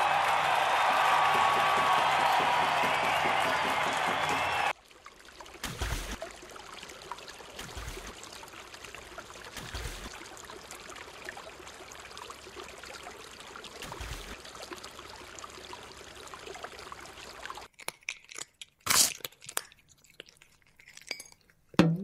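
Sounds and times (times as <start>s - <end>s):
water splashing and sloshing: 4.7s - 17.7s.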